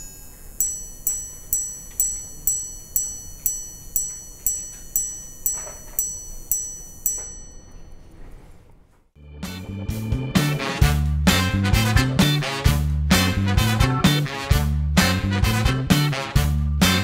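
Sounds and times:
watch chime striking high gong: 0.0 - 8.1.

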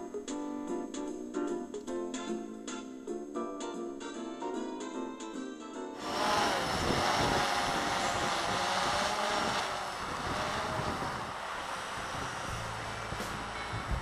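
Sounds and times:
guitar background music: 0.0 - 6.0, 12.6 - 14.0
quadcopter propellers buzzing: 6.0 - 14.0
wind noise on microphone: 6.0 - 14.0.

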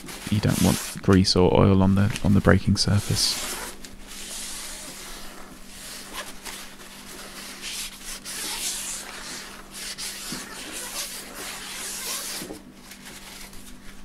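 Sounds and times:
rag rubbing a bicycle rim: 0.0 - 1.0, 2.9 - 12.6.

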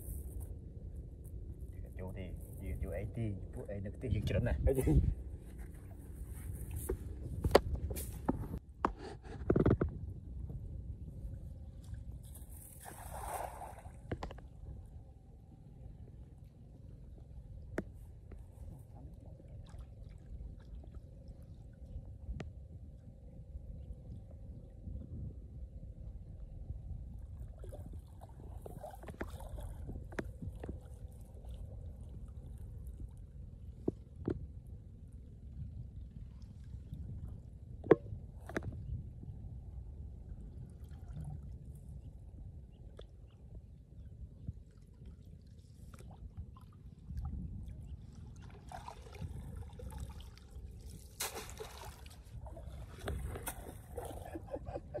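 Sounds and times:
steady low rumble: 0.0 - 51.2, 52.1 - 55.0
water splashing and sloshing: 4.8 - 15.0, 16.1 - 22.6, 27.1 - 34.8, 40.2 - 55.0
hands and net sloshing in water: 11.7 - 14.6, 27.5 - 32.6, 48.0 - 55.0.

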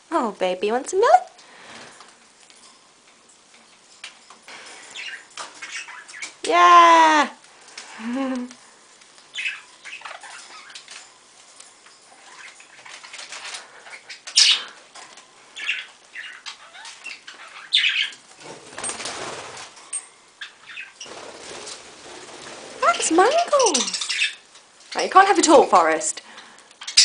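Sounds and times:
wings fluttering: 3.6 - 25.0
budgerigars chirping: 4.5 - 6.4, 9.3 - 10.9, 12.2 - 14.8, 15.5 - 18.2, 20.4 - 21.2, 22.8 - 25.9, 26.8 - 27.0.

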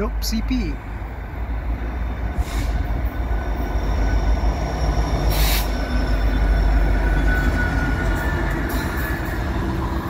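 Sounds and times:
freight train passing: 0.0 - 10.0.

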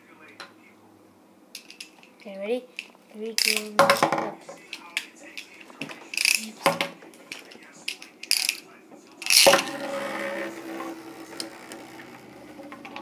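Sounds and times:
spinning top clicks and rasps: 7.3 - 8.6
whirring spinning tops: 9.2 - 13.0.

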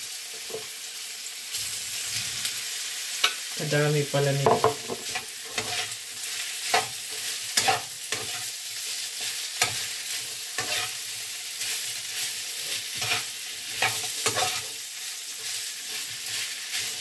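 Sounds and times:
sausage sizzling in a pan: 0.0 - 17.0.

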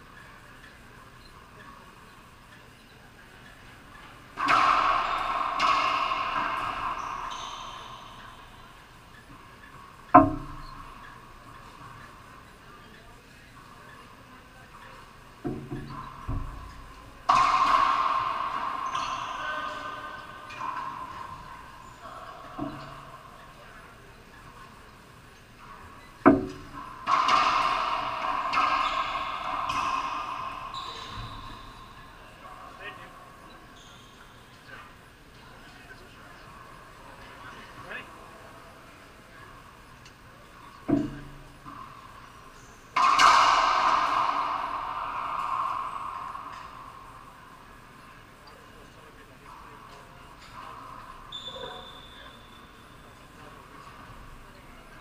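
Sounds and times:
racquetball hits echoing: 4.4 - 12.1, 14.9 - 24.5, 25.6 - 34.4, 40.4 - 53.9.

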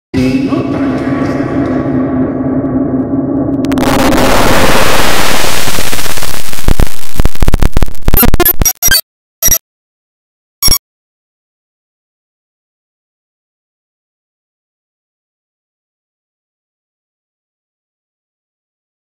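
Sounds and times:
harsh stuttering noise: 0.2 - 9.6
distorted buzzing tone: 1.4 - 9.6
short blips: 6.7 - 9.6.

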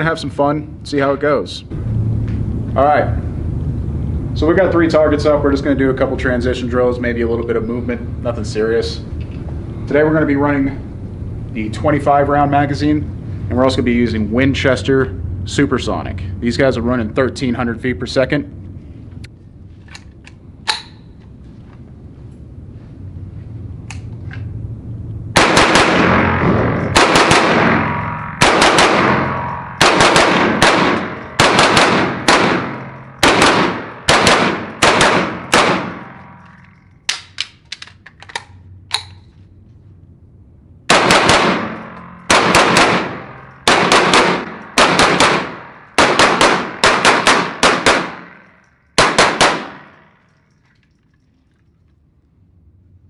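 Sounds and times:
pistol gunshots echoing indoors: 25.3 - 37.4, 40.9 - 50.6.

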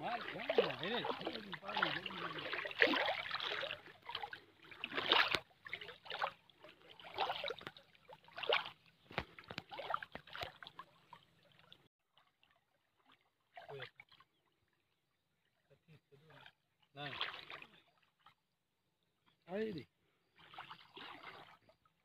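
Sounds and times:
sharp splashes: 0.0 - 14.2, 16.3 - 17.9, 20.4 - 21.7
water splashing and sloshing: 0.0 - 22.0.

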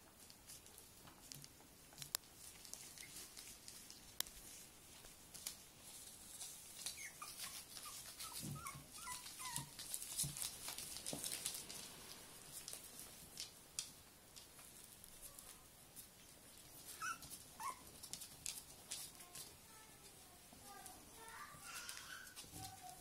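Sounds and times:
plastic sheeting crackling: 2.3 - 14.0
puppies squeaking: 6.7 - 10.2, 16.8 - 18.1
puppies whimpering: 6.8 - 9.8, 16.8 - 18.0.

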